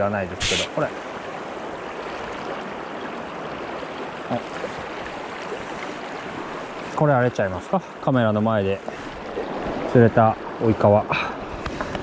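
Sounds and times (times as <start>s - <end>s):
river water flowing over stones: 0.0s - 12.0s.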